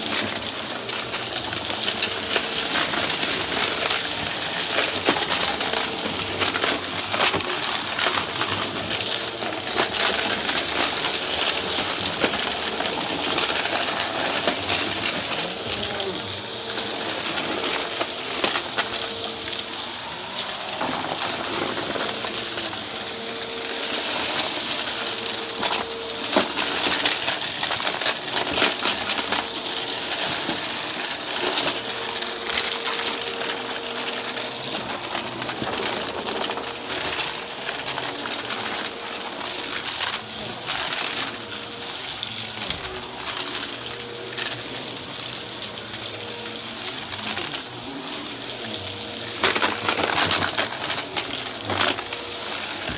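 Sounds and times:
vacuum cleaner running: 0.0s - 52.9s.

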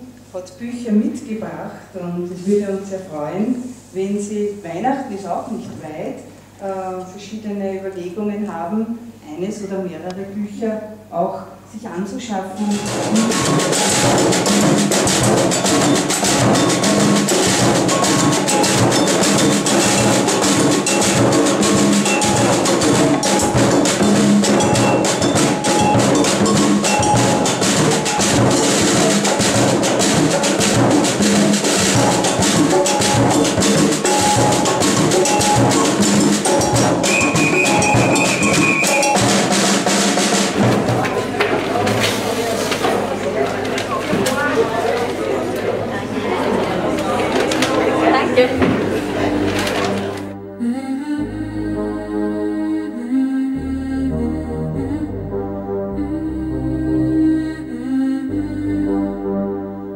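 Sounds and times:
metal-shelled drum: 12.4s - 44.4s, 46.4s - 50.4s
hand drums playing rhythm: 12.5s - 42.3s, 46.2s - 50.4s
whistle held note: 37.0s - 39.3s.

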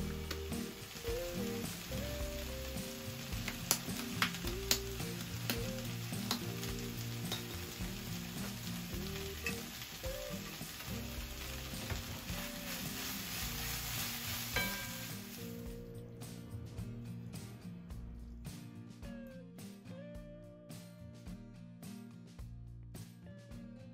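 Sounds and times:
food sizzling in a frying pan: 0.0s - 16.0s.

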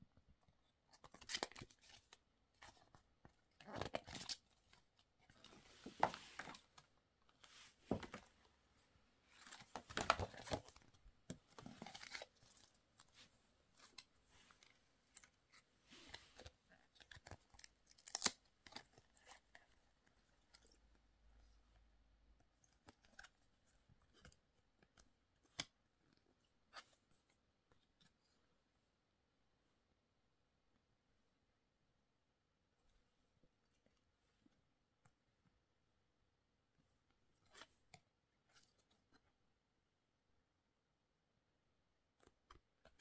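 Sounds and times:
cards being shuffled and clicking: 0.8s - 8.4s, 9.3s - 20.6s
paper rustling and crinkling: 9.2s - 19.6s.

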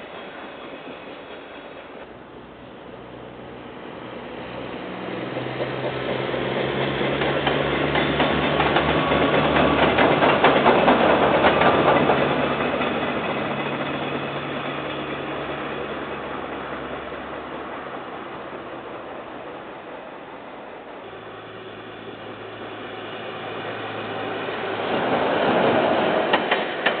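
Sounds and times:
diesel locomotive engine drone: 0.0s - 27.0s
train wheels clattering on rails: 4.8s - 19.4s, 24.0s - 27.0s.

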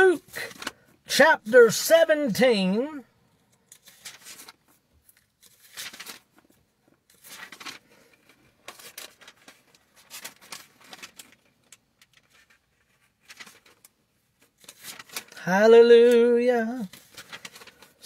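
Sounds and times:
book pages rustling: 0.2s - 1.0s, 3.5s - 15.4s, 16.8s - 18.0s.

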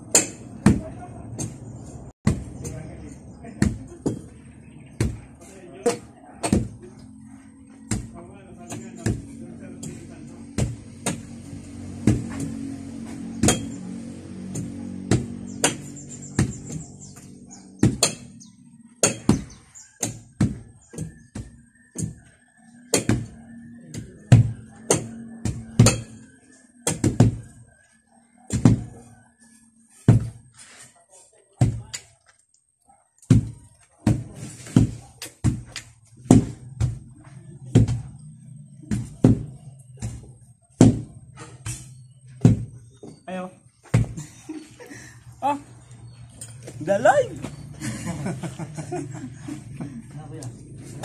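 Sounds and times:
wooden tampers thudding on soil: 33.2s - 44.3s.

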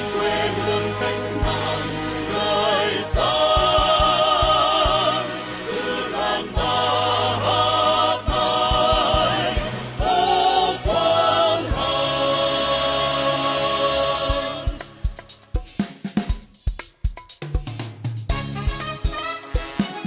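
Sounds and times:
choir singing with vibrato: 0.0s - 15.2s.

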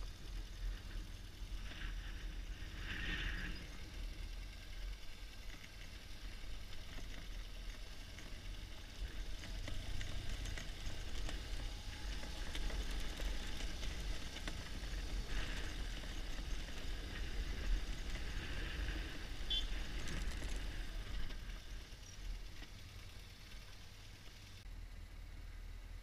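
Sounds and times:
motorcycle engine low rumble: 0.0s - 26.0s
wind noise: 10.2s - 21.9s.

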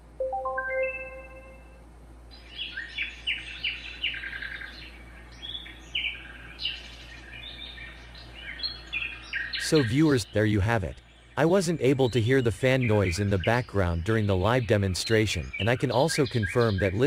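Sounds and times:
recorded birdsong chirps: 0.0s - 17.0s
rising chime notes: 0.2s - 1.8s.

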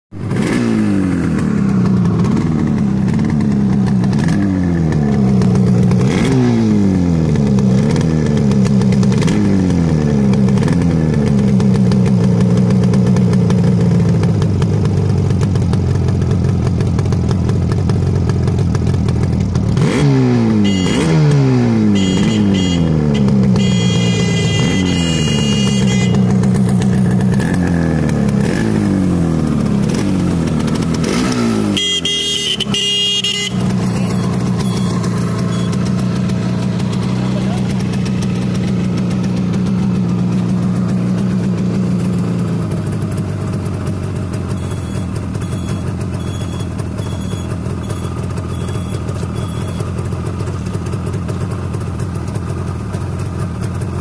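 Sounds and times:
motorcycle engine idling and revving: 0.1s - 54.0s.

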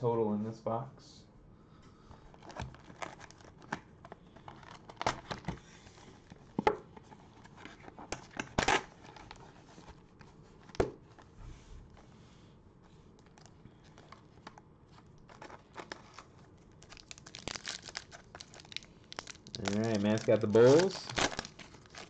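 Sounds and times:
cardboard and wrapping crinkling: 2.1s - 12.1s, 13.0s - 22.0s.

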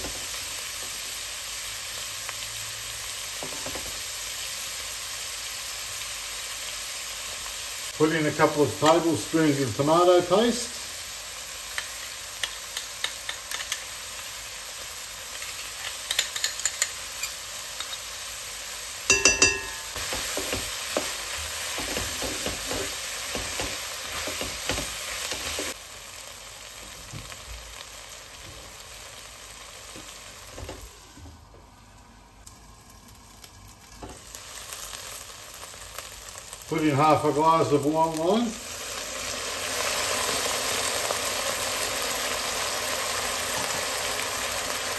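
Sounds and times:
vegetables sizzling in a pot: 0.0s - 44.9s
ringing knock: 19.1s - 19.9s.

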